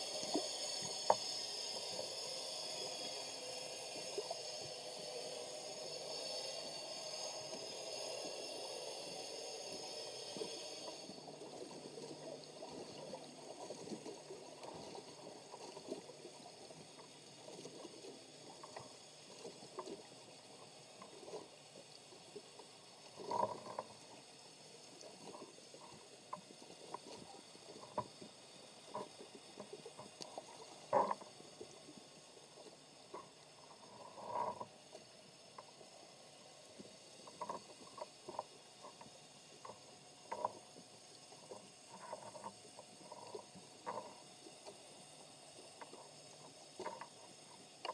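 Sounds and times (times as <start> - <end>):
underwater hum: 0.0 - 47.9
faint clicks and taps: 45.8 - 47.9.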